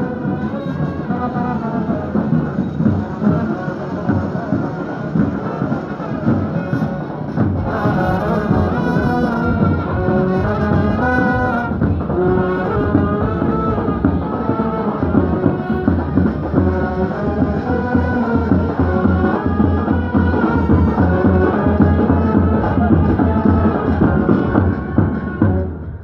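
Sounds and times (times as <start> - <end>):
brass band playing marching tune: 0.0 - 26.0
bass drums: 6.2 - 26.0.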